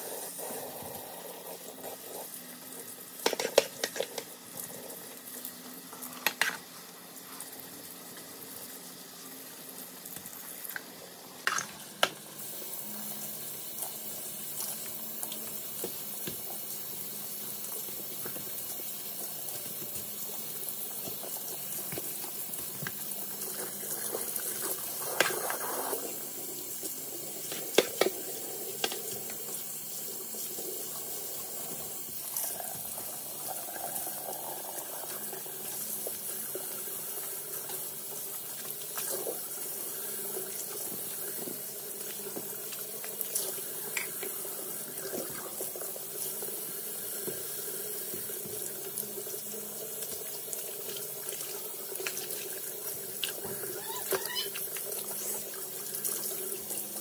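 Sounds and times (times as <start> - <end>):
faucet running into sink: 0.8 - 57.0
sponge and cloth rinsed and wrung: 11.4 - 57.0.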